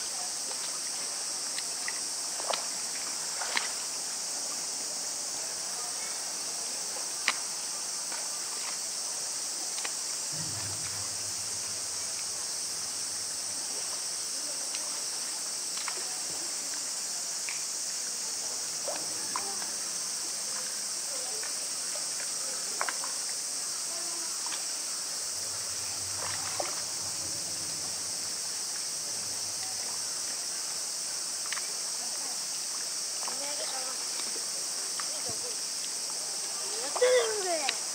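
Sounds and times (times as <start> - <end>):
cicadas chorus: 0.0 - 37.9
small water splashes: 0.4 - 4.7, 6.2 - 37.9
faint clicks: 7.2 - 7.4, 15.7 - 16.0, 17.4 - 17.7, 31.4 - 31.7.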